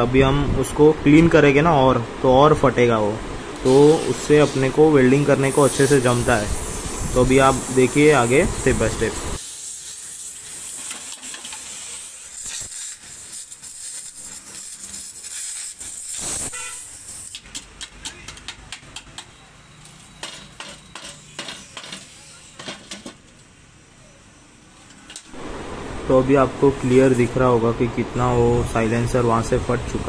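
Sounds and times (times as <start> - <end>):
gas torch hissing: 3.6 - 17.5, 24.2 - 27.6
hand tool tapping metal: 17.2 - 19.4, 20.2 - 23.2.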